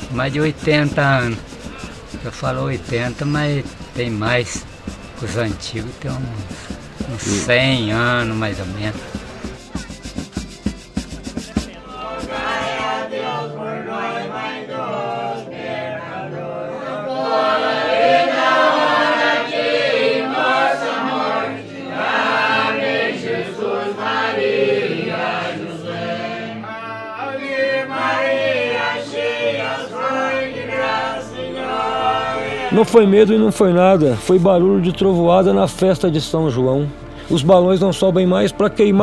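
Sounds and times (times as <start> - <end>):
group of voices singing: 0.0 - 33.3.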